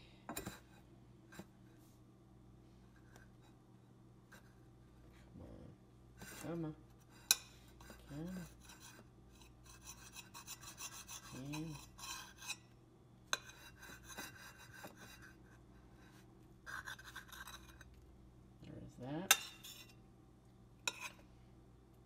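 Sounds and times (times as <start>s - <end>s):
knife sawing through sandwich: 9.6s - 12.6s.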